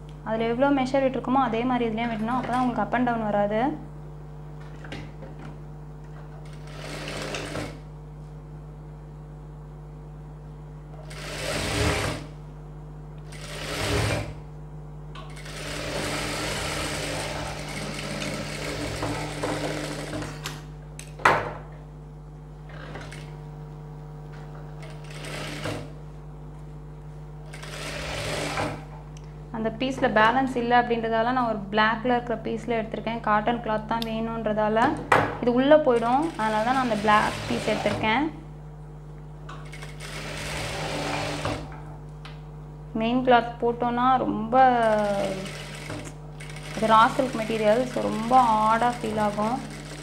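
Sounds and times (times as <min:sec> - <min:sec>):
motor hum: 0:00.0 - 0:50.0
sewing machine stitching: 0:06.4 - 0:07.8, 0:11.0 - 0:12.3, 0:13.3 - 0:14.4, 0:15.3 - 0:20.4, 0:24.8 - 0:25.9, 0:27.5 - 0:28.9, 0:36.0 - 0:38.0, 0:39.6 - 0:41.7, 0:44.8 - 0:50.0.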